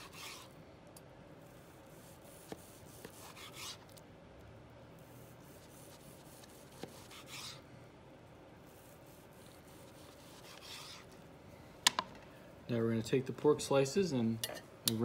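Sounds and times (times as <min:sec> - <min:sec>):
knife sawing through meat: 0:00.0 - 0:00.5, 0:02.0 - 0:03.9, 0:05.4 - 0:07.6, 0:08.7 - 0:11.1.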